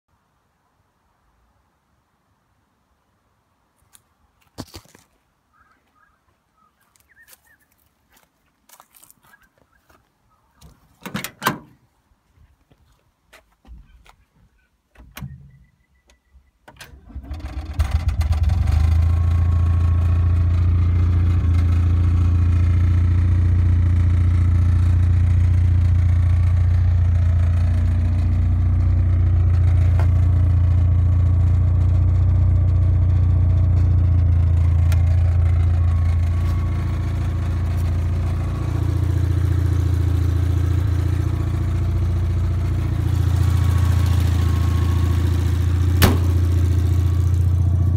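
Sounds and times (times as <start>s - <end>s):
truck engine starting and idling: 16.6s - 47.9s.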